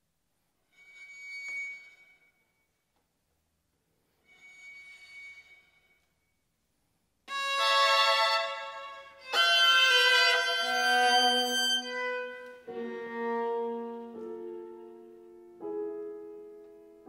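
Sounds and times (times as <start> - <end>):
violin and viola playing: 7.3 - 14.4.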